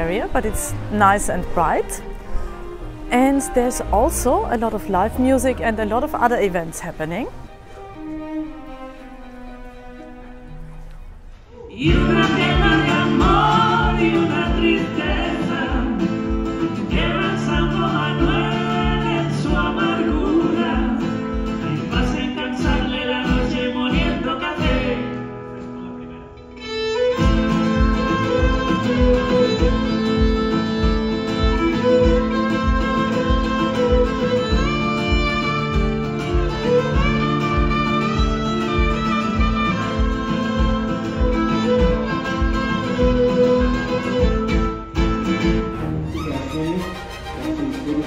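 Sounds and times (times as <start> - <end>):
violin: 0.0 - 25.2, 26.4 - 48.0
acoustic guitar strumming: 0.0 - 48.0
person singing: 11.5 - 25.1.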